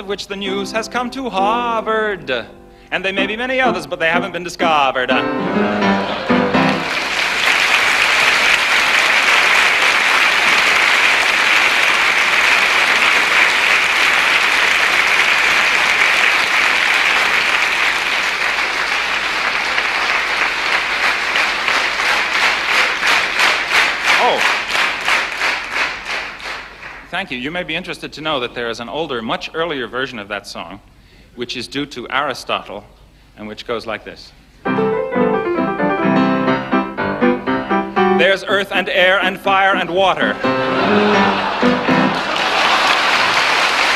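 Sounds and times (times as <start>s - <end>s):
audience applauding: 5.5s - 27.1s, 39.1s - 43.9s
rhythmic unison clapping: 5.6s - 27.3s, 39.2s - 43.9s.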